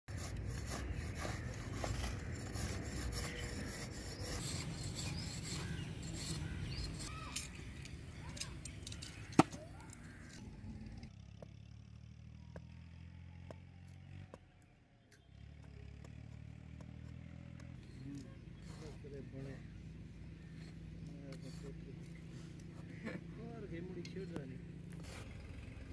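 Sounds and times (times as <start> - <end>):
metal blade scraping stone: 0.1 - 7.9.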